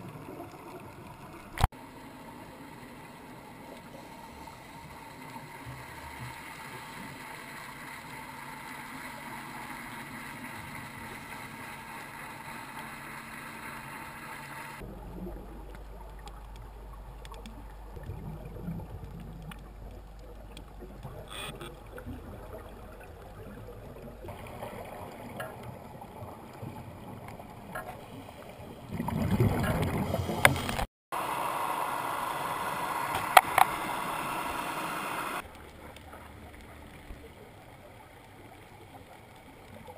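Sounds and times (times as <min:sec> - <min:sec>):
underwater boat engine hum: 0:00.2 - 0:28.8, 0:29.8 - 0:39.7
sharp clicks: 0:33.0 - 0:35.4.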